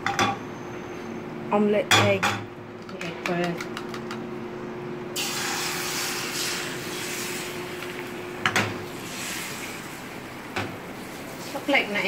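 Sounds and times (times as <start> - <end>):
egg sizzling in a frying pan: 5.2 - 12.0.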